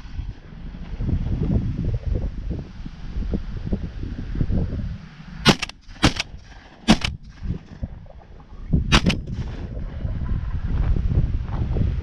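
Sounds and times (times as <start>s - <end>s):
wind rumble on microphone: 0.0s - 12.0s
shotgun reports: 5.5s - 6.3s, 6.9s - 7.2s, 8.9s - 9.3s.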